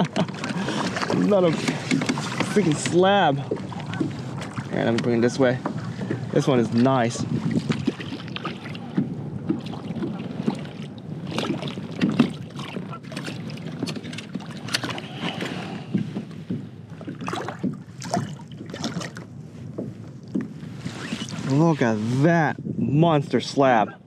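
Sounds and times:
knocks against boat: 0.0s - 6.4s, 7.4s - 15.0s, 15.9s - 19.2s
wind on microphone: 0.0s - 24.0s.

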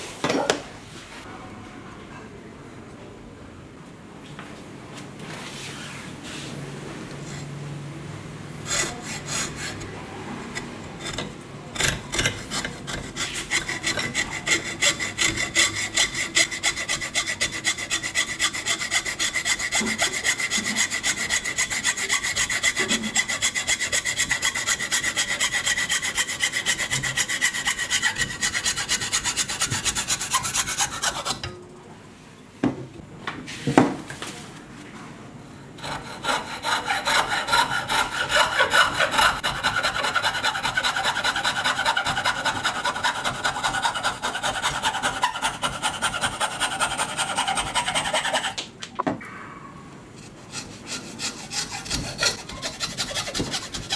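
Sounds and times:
hacksaw cutting wood: 8.7s - 9.9s, 10.6s - 31.5s, 35.8s - 48.6s, 50.5s - 53.9s.

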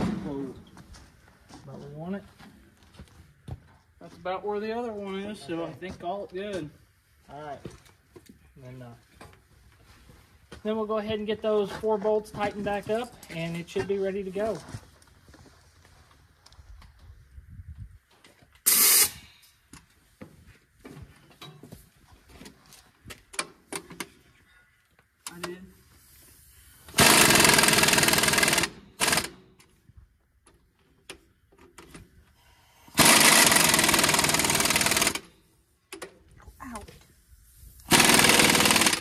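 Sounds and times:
pneumatic impact wrench hammering: 18.6s - 19.4s, 26.9s - 29.6s, 32.9s - 35.3s, 37.8s - 39.0s
tools and metal clanking: 21.2s - 21.8s, 22.5s - 25.5s.

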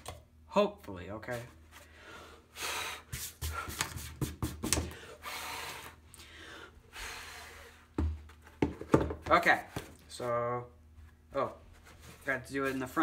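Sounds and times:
person breathing: 1.8s - 3.8s, 4.8s - 7.9s
soft rubbing: 10.1s - 13.0s.

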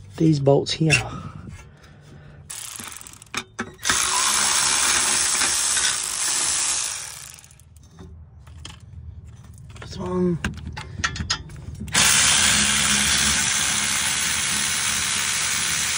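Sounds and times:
cordless electric ratchet running: 2.5s - 7.7s, 11.9s - 15.9s.

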